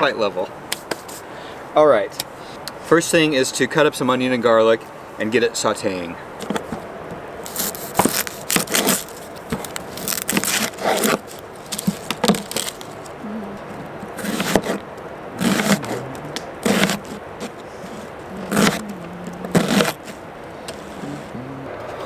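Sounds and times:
onion skin crackling: 0:07.5 - 0:14.8, 0:15.4 - 0:21.3.

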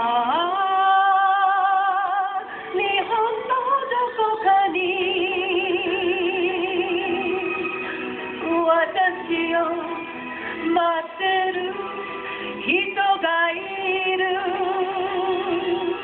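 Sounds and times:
musical accompaniment: 0:00.0 - 0:16.0
woman singing: 0:00.0 - 0:16.0.

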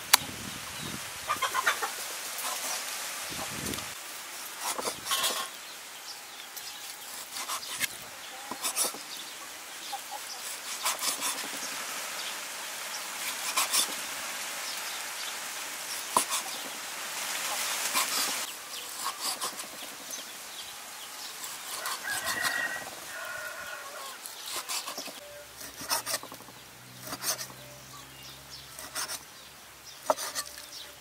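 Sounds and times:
cleaver chopping on wooden block: 0:30.0 - 0:30.6.

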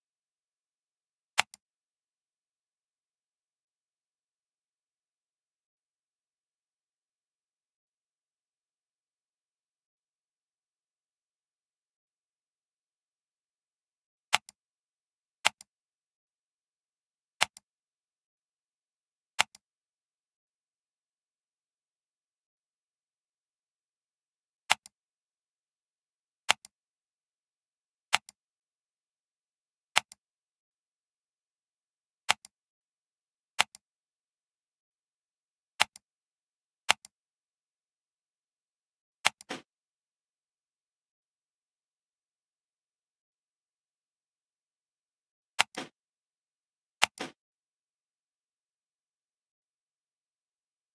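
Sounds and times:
computer mouse clicks: 0:01.4 - 0:01.7, 0:14.3 - 0:14.6, 0:15.4 - 0:15.7, 0:17.4 - 0:17.7, 0:19.4 - 0:19.6, 0:24.7 - 0:25.0, 0:26.4 - 0:26.8, 0:28.1 - 0:28.4, 0:29.9 - 0:30.2, 0:32.2 - 0:32.6, 0:33.6 - 0:33.8, 0:35.8 - 0:36.1, 0:36.8 - 0:37.2, 0:39.2 - 0:39.7, 0:45.6 - 0:46.0, 0:47.0 - 0:47.4.

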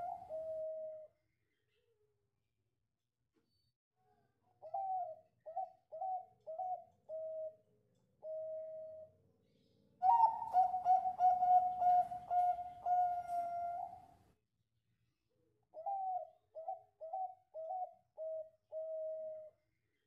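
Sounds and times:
dove cooing: 0:00.0 - 0:01.1, 0:04.6 - 0:07.6, 0:08.2 - 0:09.2, 0:10.0 - 0:14.2, 0:15.8 - 0:19.5.

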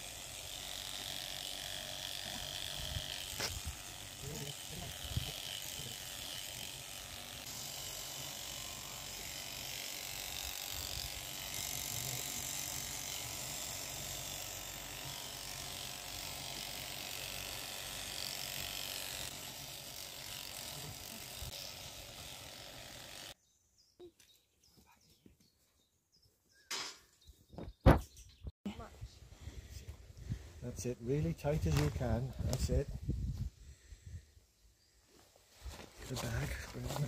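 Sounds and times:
electric sheep shears running: 0:00.0 - 0:23.4.

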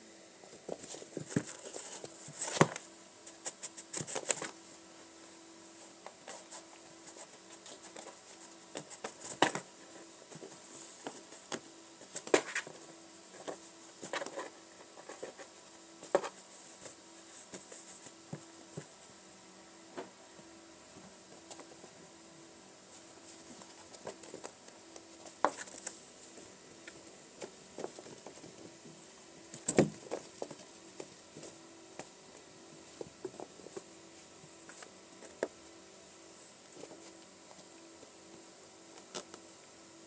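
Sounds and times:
paws tapping and scratching carpet: 0:00.5 - 0:04.6, 0:05.8 - 0:19.1, 0:23.0 - 0:35.6.

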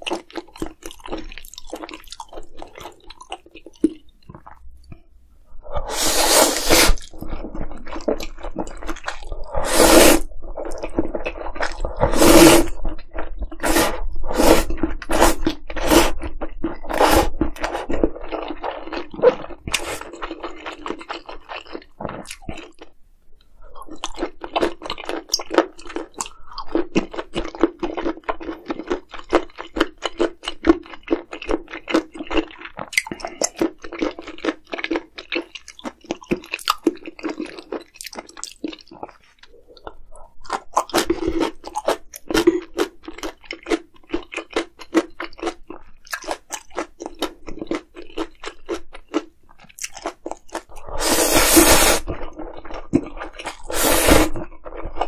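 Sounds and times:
chewing and crunching food: 0:00.0 - 0:06.0, 0:06.6 - 0:55.0.

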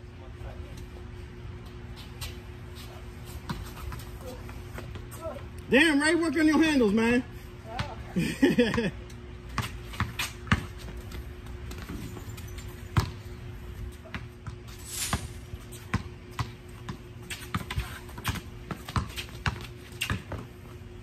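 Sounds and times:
basketball bouncing on concrete: 0:07.7 - 0:13.3, 0:14.0 - 0:20.7.

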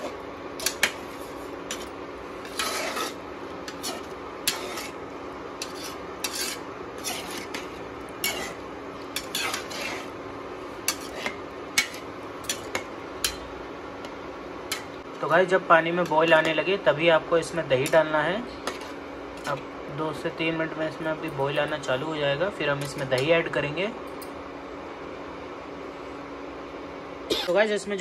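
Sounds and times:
spatula scraping and tapping pan: 0:00.0 - 0:05.0, 0:05.6 - 0:10.2, 0:10.8 - 0:15.0, 0:18.6 - 0:19.6
steady low hum: 0:00.0 - 0:28.0.

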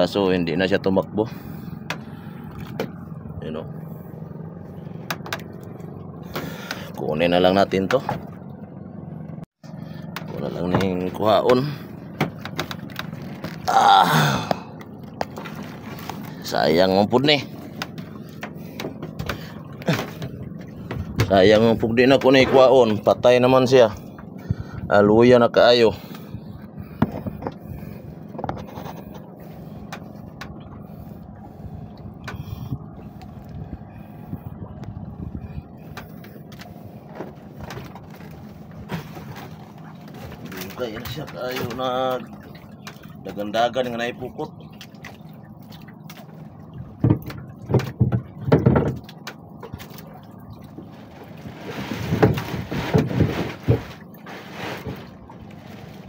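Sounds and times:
boat engine humming: 0:00.0 - 0:56.0
wind buffeting microphone: 0:30.4 - 0:37.7.

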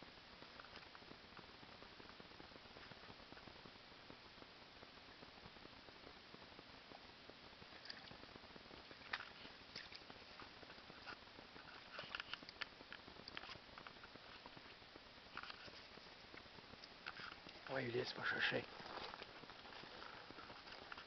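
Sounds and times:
steady hiss: 0:00.0 - 0:21.0
paws stepping in shallow water: 0:08.9 - 0:12.6.

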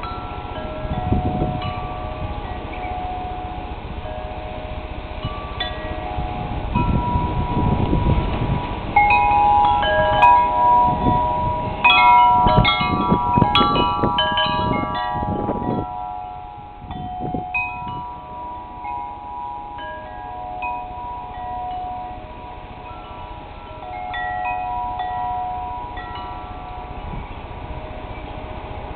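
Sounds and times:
metal wind chimes ringing: 0:00.0 - 0:28.9
wind gusts on microphone: 0:00.0 - 0:28.9.

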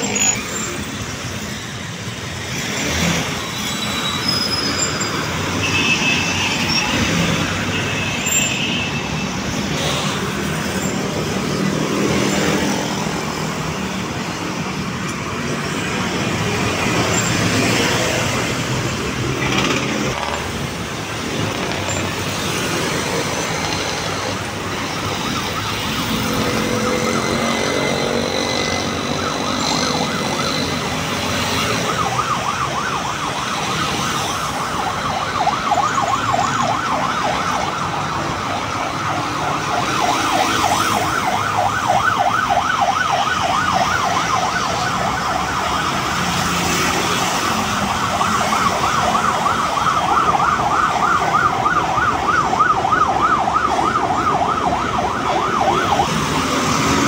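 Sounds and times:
motorcycles and cars passing: 0:09.4 - 0:57.0
siren yelping: 0:21.0 - 0:57.0.

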